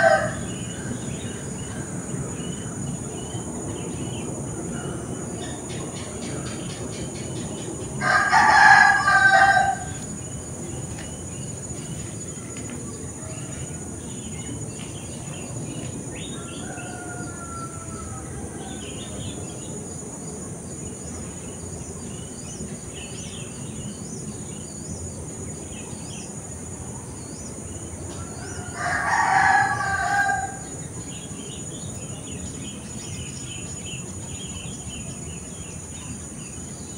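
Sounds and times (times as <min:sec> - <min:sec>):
rooster crowing: 0:00.0 - 0:00.8, 0:08.0 - 0:10.0, 0:16.3 - 0:19.3, 0:28.1 - 0:30.8
high insect drone: 0:00.0 - 0:36.9.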